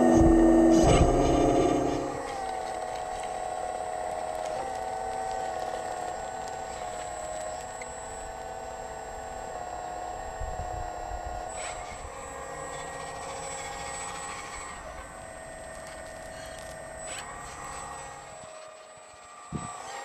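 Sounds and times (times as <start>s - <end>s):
wind on microphone: 0.0s - 2.2s
hydraulic whine: 0.0s - 20.0s.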